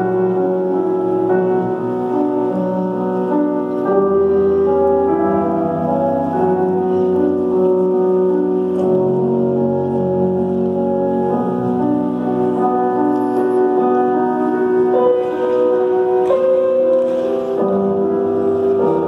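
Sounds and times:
classical piano music over loudspeakers: 0:00.0 - 0:19.0.

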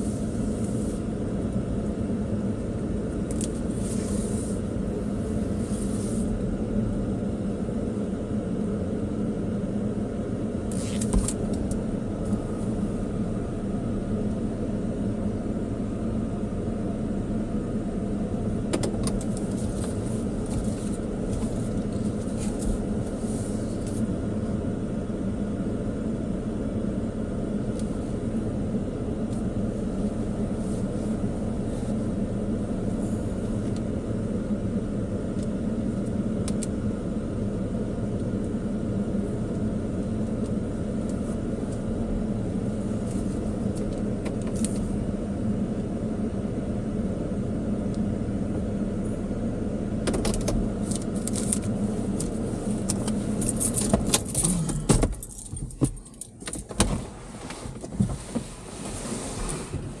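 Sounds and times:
keys jangling: 0:53.4 - 0:56.4.

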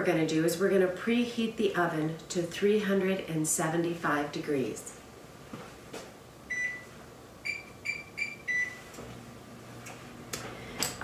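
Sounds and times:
oven control panel beeping: 0:06.5 - 0:08.9.

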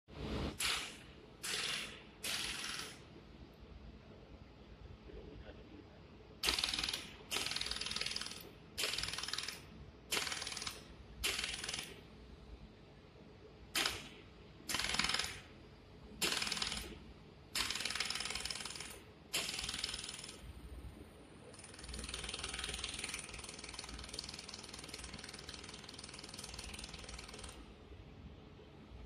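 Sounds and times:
laser welding machine ticking: 0:00.6 - 0:03.0, 0:06.4 - 0:12.0, 0:13.8 - 0:15.5, 0:16.2 - 0:17.0, 0:17.6 - 0:20.5, 0:21.5 - 0:27.6.

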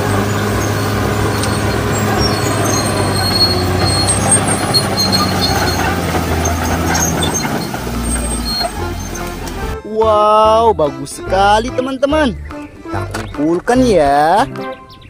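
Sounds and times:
bulldozer diesel engine: 0:00.0 - 0:09.8
steel tracks squealing: 0:00.0 - 0:09.8.

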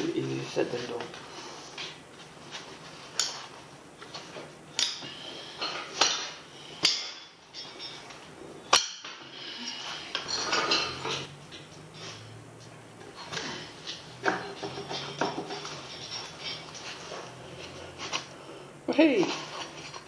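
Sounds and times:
metal tools clinking: 0:05.6 - 0:08.1, 0:09.7 - 0:12.2, 0:13.3 - 0:17.4.

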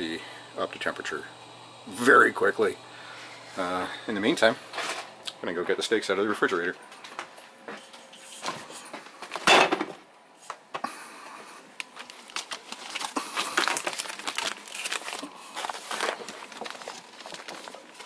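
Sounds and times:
plastic packages crinkling: 0:11.7 - 0:18.0.

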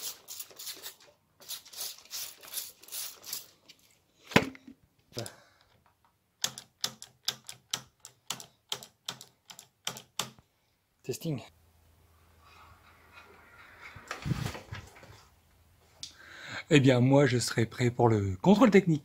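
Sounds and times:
spray bottle squirting: 0:00.0 - 0:03.6.

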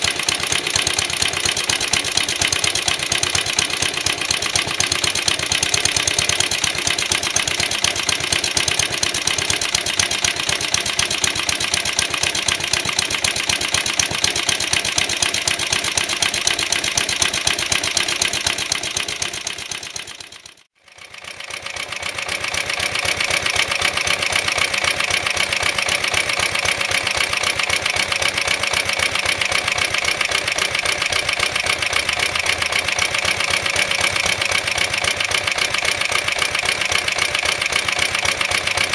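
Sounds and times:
lawnmower engine running: 0:00.0 - 0:38.9.

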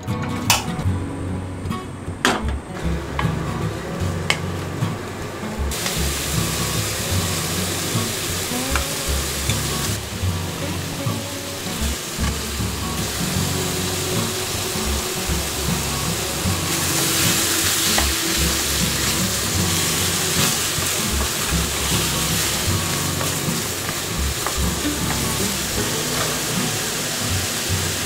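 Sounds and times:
meat sizzling in a frying pan: 0:05.7 - 0:28.0.

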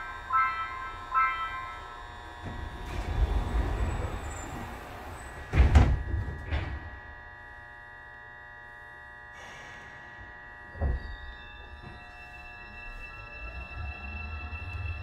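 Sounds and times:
subway door-closing chime: 0:00.0 - 0:07.0, 0:10.7 - 0:15.0
sliding doors rumbling shut: 0:02.2 - 0:07.0
doors meeting with loud thud: 0:02.4 - 0:07.0, 0:10.7 - 0:11.2.

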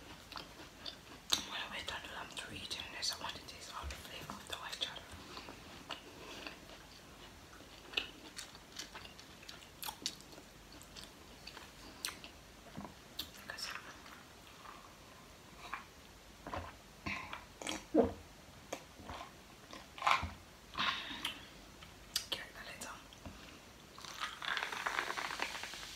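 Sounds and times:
chewing crunchy potato chips: 0:00.0 - 0:01.6, 0:04.6 - 0:14.1, 0:19.0 - 0:20.3, 0:24.0 - 0:25.5.

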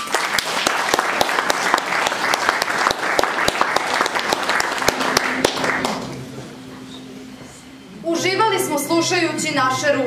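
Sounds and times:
audience applauding: 0:00.0 - 0:06.3.

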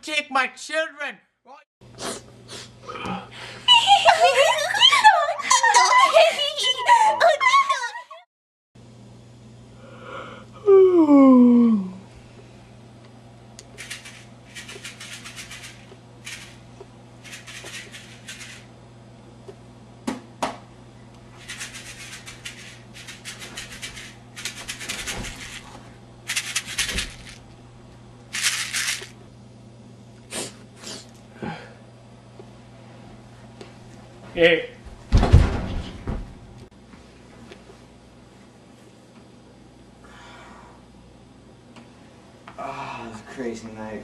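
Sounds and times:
low electrical hum: 0:08.8 - 0:44.0.

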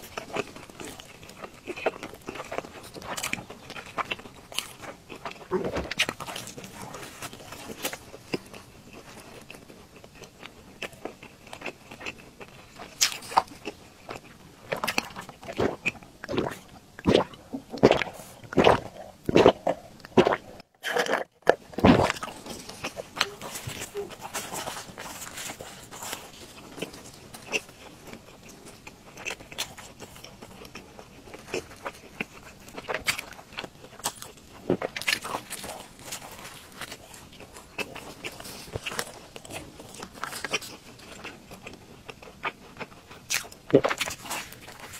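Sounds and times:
crisp chewing crunches: 0:00.0 - 0:44.9.

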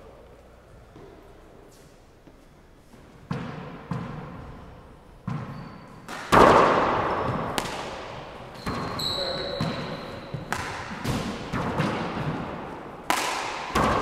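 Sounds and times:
sneakers squeaking on floor: 0:00.8 - 0:06.4, 0:07.1 - 0:12.4
ball bouncing on hardwood floor: 0:03.3 - 0:04.6, 0:05.2 - 0:12.4.

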